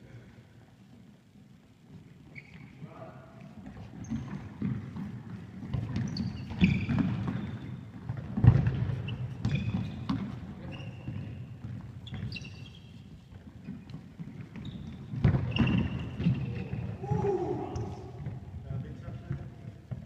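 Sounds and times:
trainers squeaking on court floor: 2.2s - 20.0s
football kicks and thuds: 6.7s - 10.4s, 15.1s - 16.4s.

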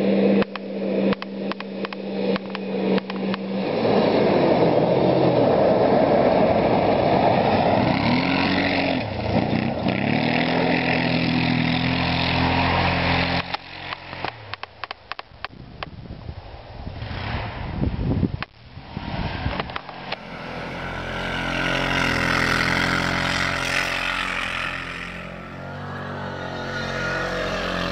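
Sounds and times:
atv engine accelerating: 0.0s - 15.9s, 16.7s - 27.9s
sharp clicks and knocks: 0.4s - 3.4s, 13.4s - 15.9s.

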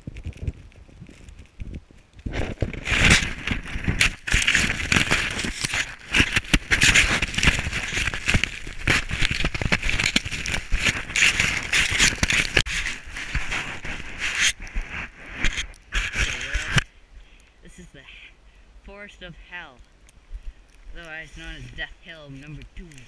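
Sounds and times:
camera knocking and rattling: 0.0s - 14.6s
sled scraping through snow: 0.0s - 16.8s.

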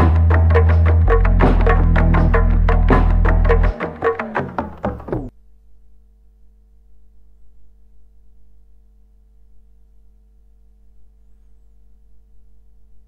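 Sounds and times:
music track: 0.0s - 5.3s
faint electrical mains hum: 5.3s - 13.0s.

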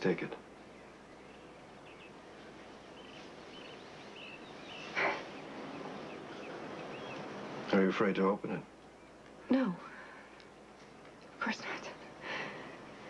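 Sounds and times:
steady hiss: 0.0s - 13.0s
bird chirps: 0.6s - 7.7s.

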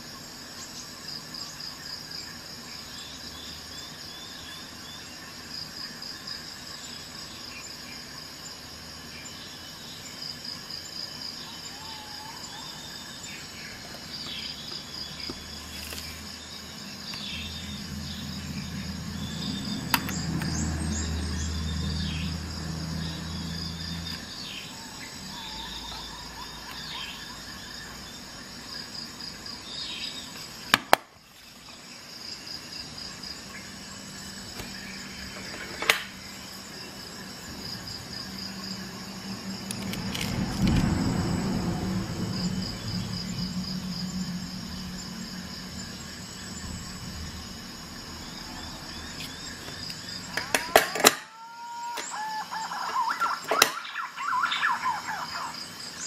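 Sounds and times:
crickets chirping: 0.0s - 56.0s
low hum: 38.5s - 49.6s.

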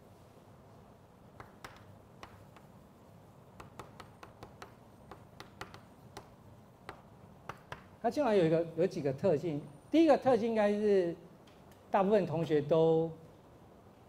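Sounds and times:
chalk on blackboard: 1.3s - 8.0s.

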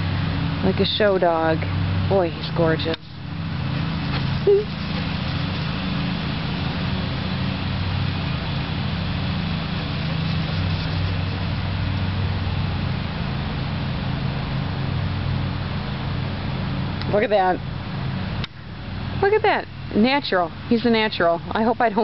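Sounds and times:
low mechanical hum: 0.0s - 22.0s
short rising squeak: 4.0s - 5.5s.

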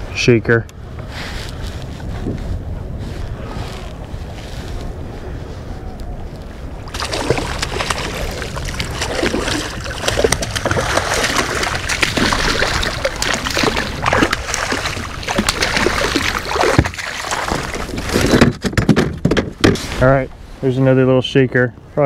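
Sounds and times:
fish splashing at water surface: 6.9s - 18.3s.

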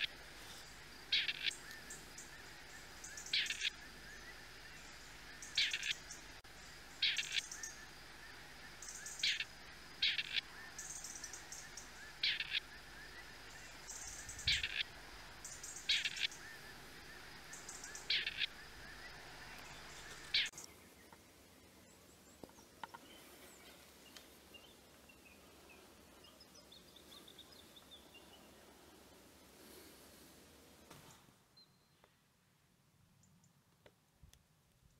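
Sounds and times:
partridges calling: 0.0s - 20.7s.

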